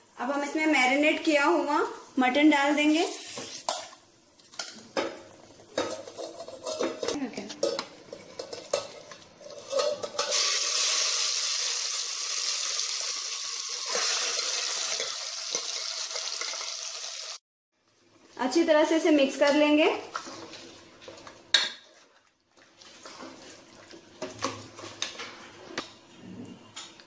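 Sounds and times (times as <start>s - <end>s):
meat sizzling in hot fat: 10.3s - 17.4s.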